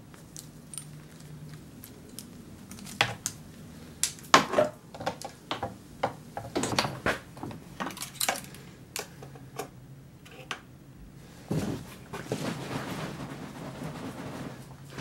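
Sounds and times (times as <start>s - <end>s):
chainsaw parts clicking and clattering: 7.8s - 9.1s.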